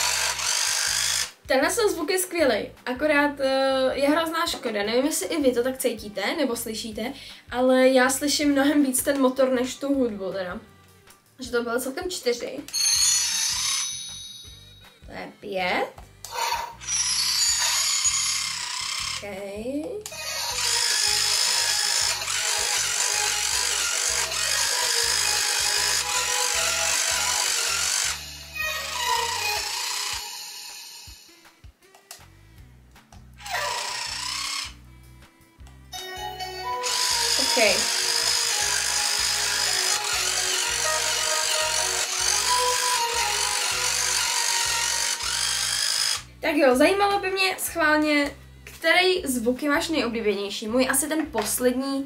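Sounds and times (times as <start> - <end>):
toy playing music: 0.0 - 1.4, 12.7 - 19.4, 20.0 - 32.6, 33.4 - 46.3
small electric motor whirring: 0.0 - 1.5, 12.7 - 14.2, 16.3 - 19.4, 20.1 - 31.5, 33.4 - 34.8, 36.7 - 46.4.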